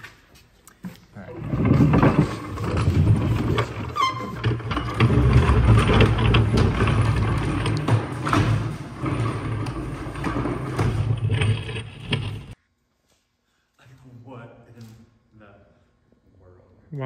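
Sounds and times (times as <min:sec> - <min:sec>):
table slide runners clattering: 0:01.3 - 0:12.6.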